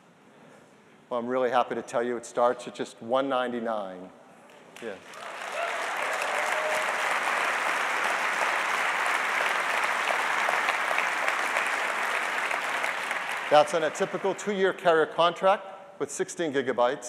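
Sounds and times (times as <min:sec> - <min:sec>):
audience applauding: 0:04.8 - 0:14.6.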